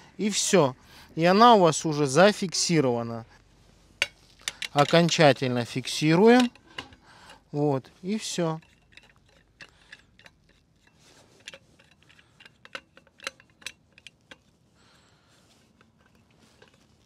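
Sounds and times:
faint metallic clicks and taps: 4.0s - 5.4s, 6.3s - 7.4s, 8.6s - 14.6s.

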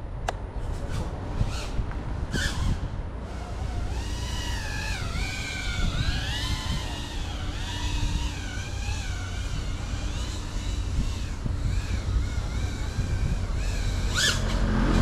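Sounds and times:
drone motors whining: 0.6s - 15.0s
low rumble: 11.4s - 15.0s.

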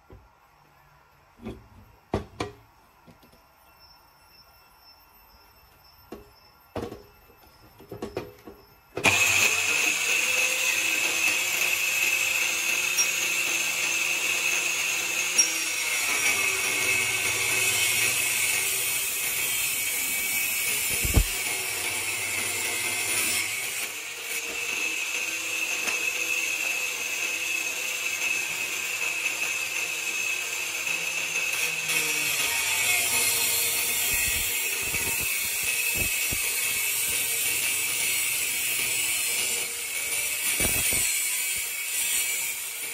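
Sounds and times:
angle grinder cutting metal: 9.0s - 42.9s.

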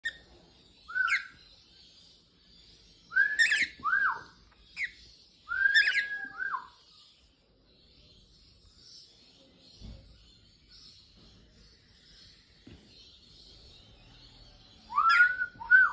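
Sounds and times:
cockatiel whistling: 0.9s - 1.3s, 3.1s - 4.9s, 5.5s - 6.7s, 14.9s - 15.9s.

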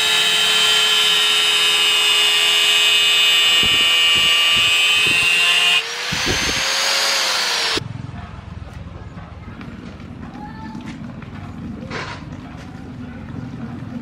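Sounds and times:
angle grinder cutting steel: 0.0s - 7.8s.

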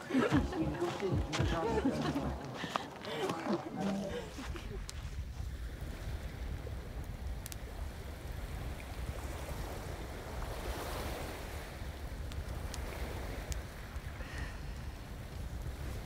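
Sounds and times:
sea surf washing on shore: 0.0s - 16.0s
wind rumble on microphone: 4.1s - 16.0s.

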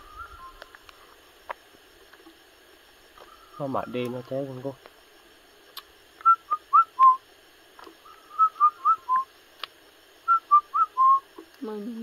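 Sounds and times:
bird whistling: 0.0s - 0.7s, 3.2s - 3.7s, 6.2s - 7.2s, 8.0s - 9.3s, 10.2s - 11.3s.

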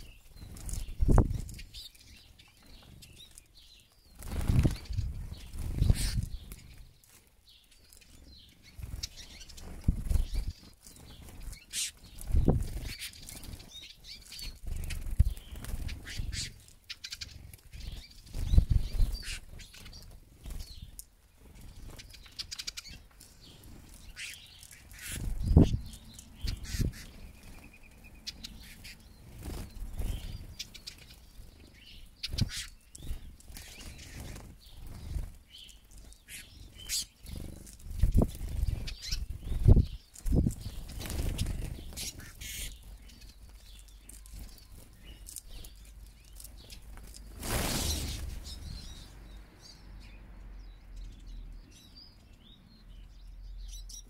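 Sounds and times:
bird wingbeats whooshing: 47.3s - 48.8s.

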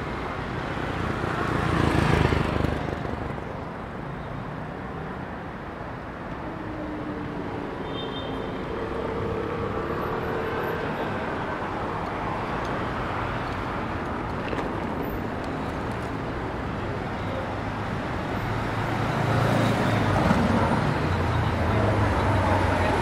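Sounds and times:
city traffic noise: 0.0s - 23.0s
rumble of passing vehicles: 0.0s - 23.0s.

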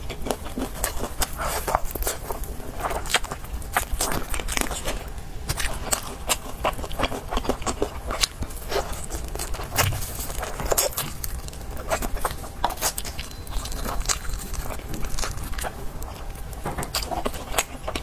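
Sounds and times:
crunchy chewing: 0.0s - 18.0s.

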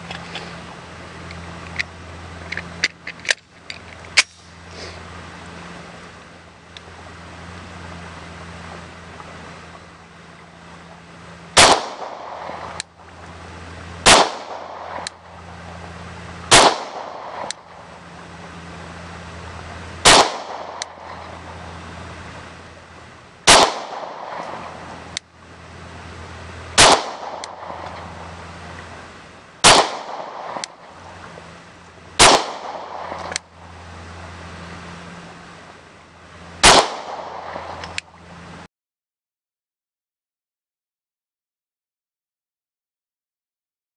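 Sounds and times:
steady low hum: 0.0s - 38.7s
pistol shots with echo: 11.6s - 12.6s, 14.0s - 15.0s, 16.5s - 17.5s, 20.0s - 20.8s, 23.5s - 24.6s, 26.8s - 27.8s, 29.6s - 30.7s, 32.2s - 33.2s, 36.6s - 37.8s.

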